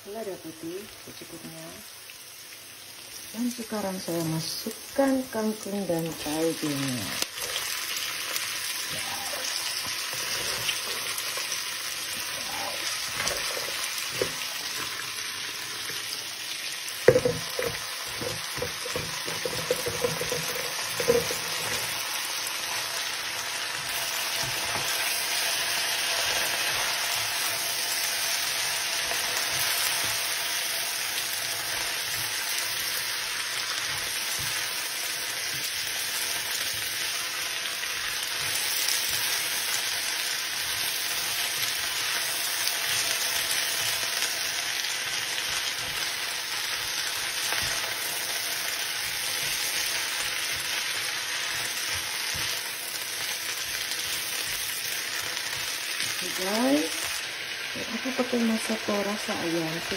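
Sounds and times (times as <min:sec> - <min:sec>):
vegetables sizzling in a wok: 0:00.0 - 0:59.9
spatula knocking a pan: 0:17.0 - 0:21.9.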